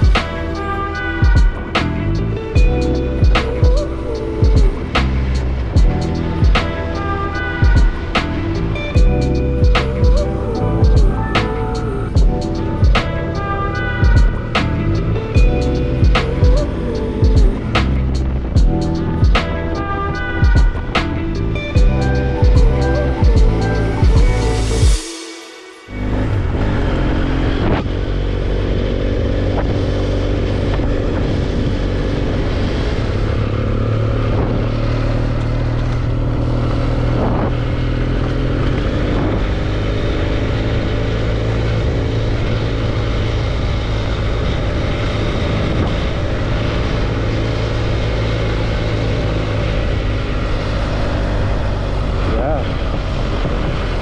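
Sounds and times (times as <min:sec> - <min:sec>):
motorcycle engine droning: 0:00.0 - 0:25.0, 0:25.7 - 0:54.0.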